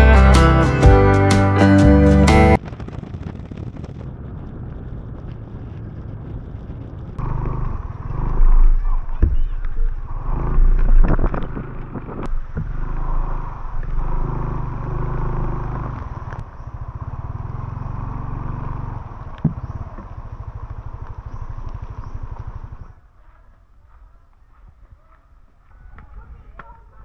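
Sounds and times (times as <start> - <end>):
motor scooter engine running: 0.0 - 23.1.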